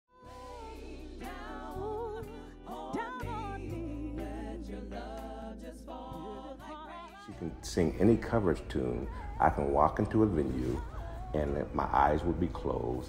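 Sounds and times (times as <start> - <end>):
woman singing: 0.1 - 7.5, 10.3 - 11.7
low instrumental backing: 0.3 - 13.0.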